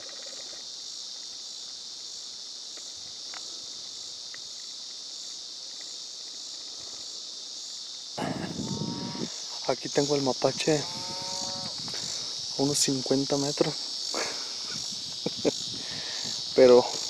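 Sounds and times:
crickets and insects chirping: 0.0s - 17.0s.

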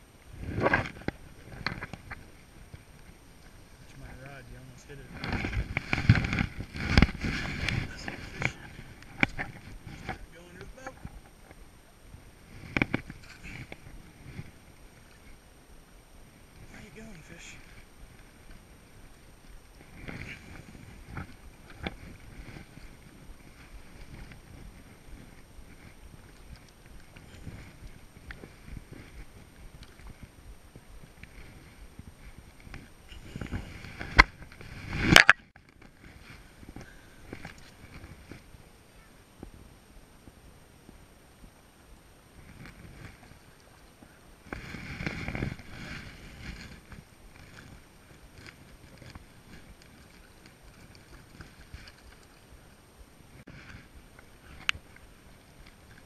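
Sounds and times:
wind on microphone: 0.0s - 56.0s
water slapping boat hull: 0.4s - 15.4s, 42.3s - 56.0s.

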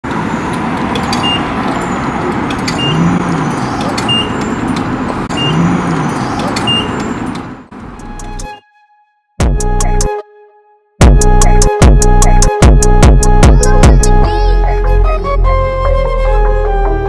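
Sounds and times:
short high beeps: 5.3s - 5.7s.

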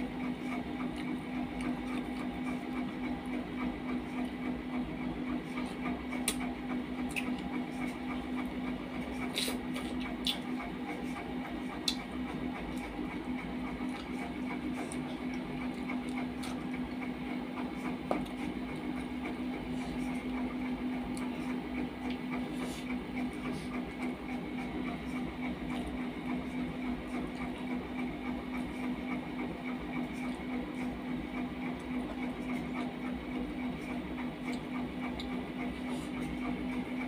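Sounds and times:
low machine hum: 0.0s - 37.0s
eating clicks and smacks: 0.8s - 3.3s, 5.9s - 11.0s, 11.6s - 13.0s, 13.6s - 17.1s, 34.4s - 35.4s.

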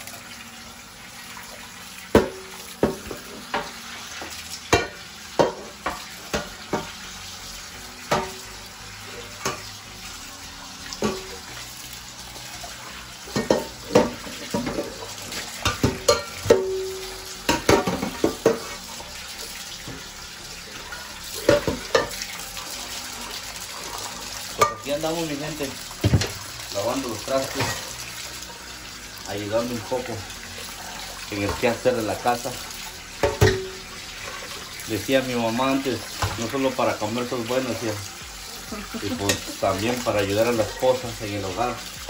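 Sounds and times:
tap water running: 0.0s - 42.0s
metal pots knocking against sink: 2.1s - 3.8s, 4.7s - 7.0s, 8.1s - 8.4s, 13.3s - 15.0s, 15.6s - 18.7s, 21.4s - 22.2s, 26.0s - 26.4s, 33.2s - 33.8s.

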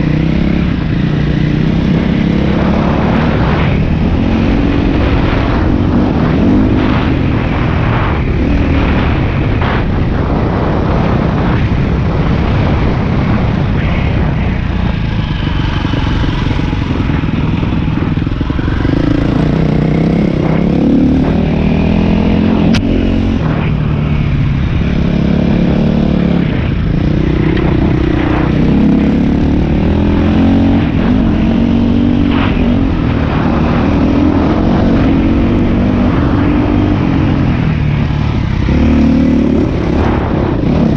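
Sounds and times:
dirt bike engine revving: 0.0s - 40.9s
sharp click: 22.6s - 22.9s.

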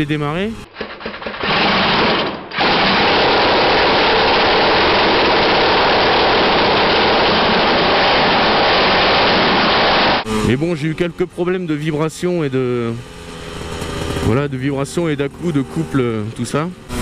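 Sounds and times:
electric drill turning engine: 0.7s - 10.2s
motorcycle engine running: 10.1s - 17.0s.

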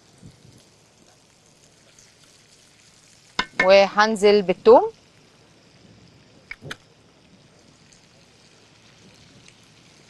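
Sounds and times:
food sizzling in a pan: 0.0s - 10.0s.

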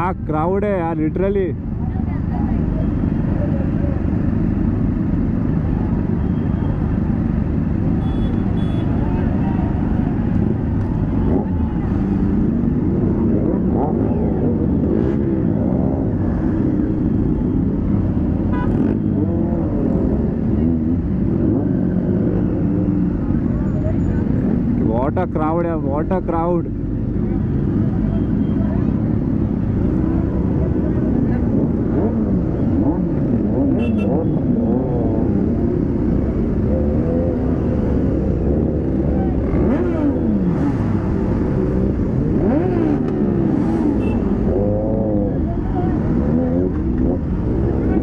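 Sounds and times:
motorcycle engines rumbling: 0.0s - 48.0s
crowd voices and shouts: 8.9s - 12.6s.

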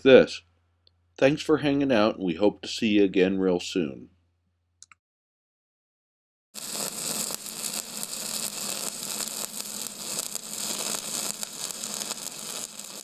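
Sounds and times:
welding arc buzzing and crackling: 6.6s - 13.0s.

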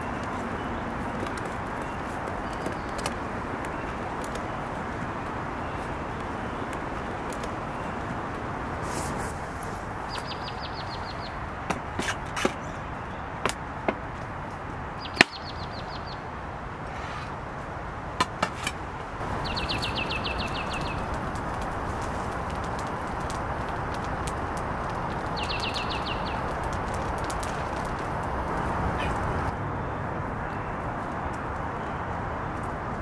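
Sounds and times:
rain hissing: 0.0s - 12.2s, 18.8s - 29.5s.

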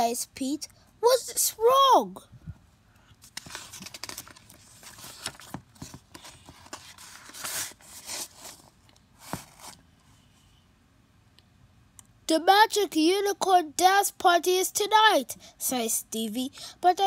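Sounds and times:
paper pages turning: 3.2s - 9.8s.

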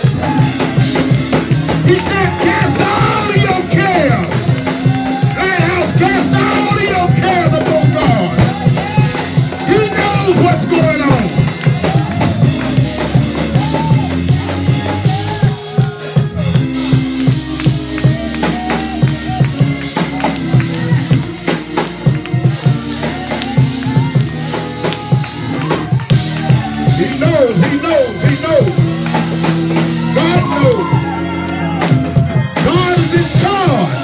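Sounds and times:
drum kit and tambourine beat: 0.0s - 34.0s
man's voice over speakers: 1.7s - 4.6s, 5.2s - 8.8s, 9.4s - 11.6s, 26.7s - 29.0s, 30.0s - 31.1s, 32.6s - 34.0s.

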